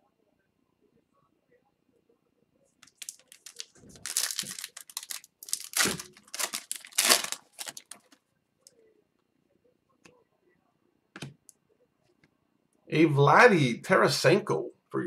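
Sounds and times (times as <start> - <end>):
foil wrapper crinkling and tearing: 2.8 - 8.1.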